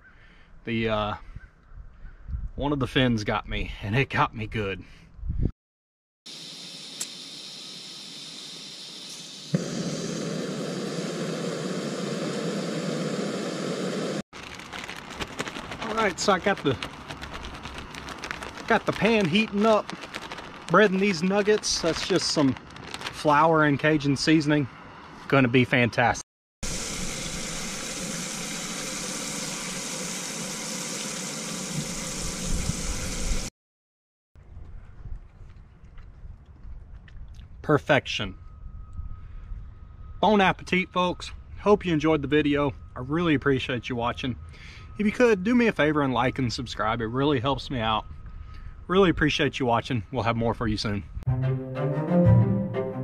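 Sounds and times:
gas hissing from burner: 6.5 - 14.2
gas burner running: 7.0 - 14.2.

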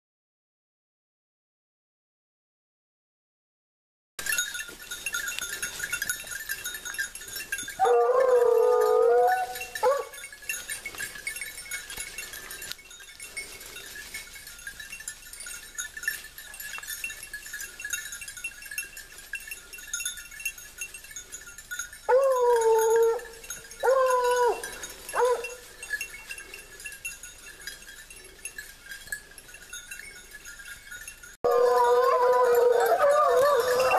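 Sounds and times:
hounds baying: 4.7 - 15.2, 21.2 - 30.4, 31.4 - 33.9.

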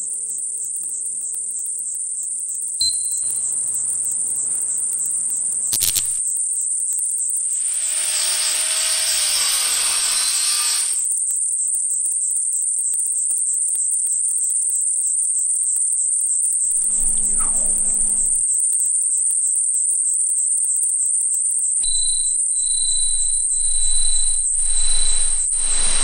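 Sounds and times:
high-pitched cricket-like chirring: 0.0 - 26.0
hissing swell: 7.5 - 11.1, 16.7 - 18.4, 21.8 - 26.0
low hum: 16.7 - 18.4, 21.8 - 26.0.

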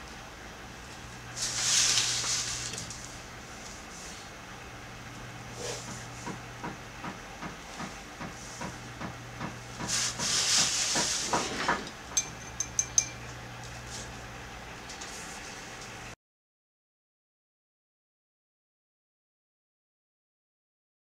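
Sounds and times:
sharp clinks: 12.1 - 13.4.

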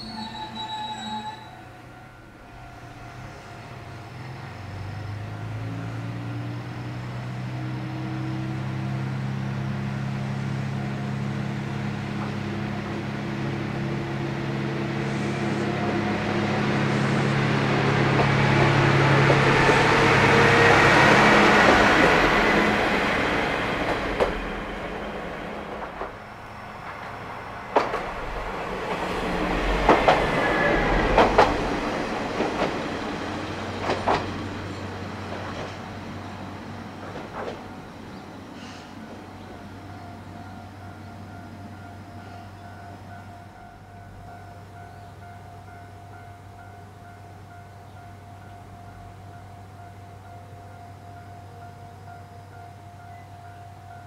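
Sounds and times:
diesel railcar engine humming: 0.0 - 54.0
wheels clacking over rail joints: 17.5 - 39.5.

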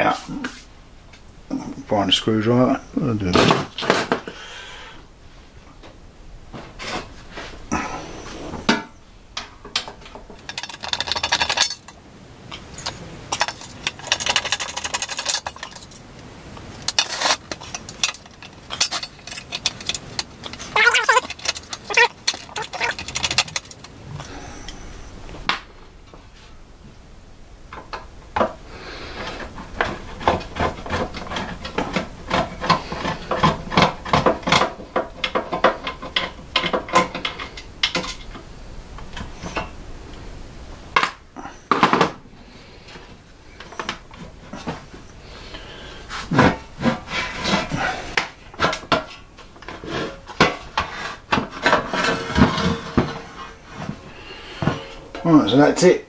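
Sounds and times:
hand tools and metal parts rattling: 8.7 - 24.8, 27.7 - 39.8, 42.8 - 56.0.

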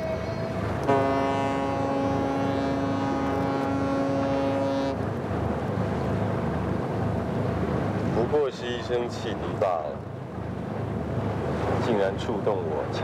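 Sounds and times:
ship's horn blast: 0.0 - 5.1
low rumble on water: 0.0 - 13.0.

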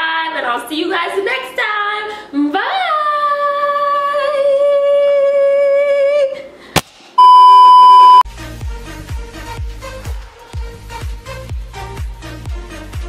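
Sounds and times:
test-pattern beep: 7.2 - 8.2.

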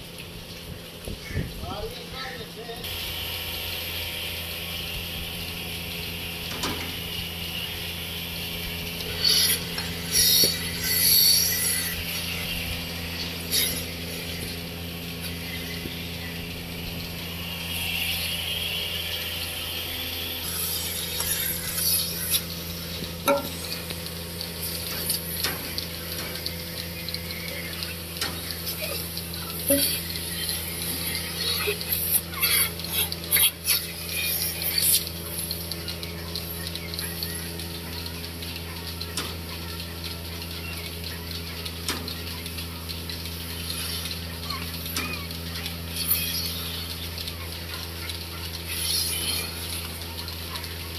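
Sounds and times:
milking machine humming: 0.0 - 50.9
hissing: 9.0 - 35.6.

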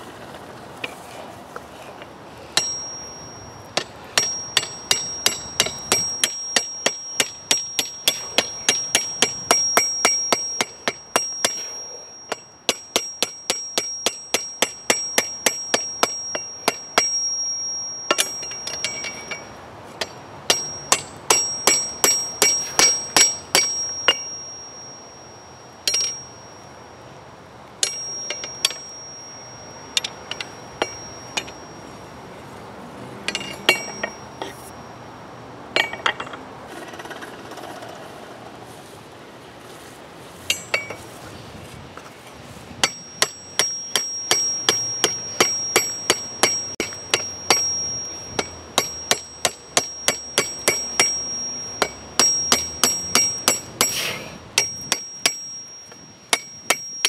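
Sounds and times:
hammer striking steel on anvil: 2.6 - 25.2, 25.9 - 26.5, 27.8 - 31.8, 33.3 - 34.8, 35.8 - 36.4, 40.5 - 41.0, 42.8 - 57.0
anvil ringing high-pitched: 2.6 - 26.6, 27.8 - 31.8, 33.3 - 34.8, 35.8 - 36.4, 42.8 - 54.0, 54.6 - 57.0.

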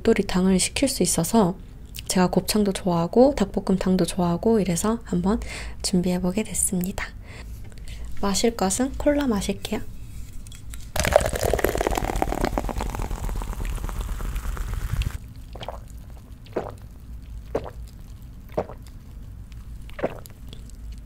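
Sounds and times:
can cracked open: 11.0 - 14.2
cola fizzing into glass: 11.0 - 15.9
person gulping: 11.0 - 16.8, 17.5 - 17.9, 18.5 - 18.9, 19.9 - 20.7.

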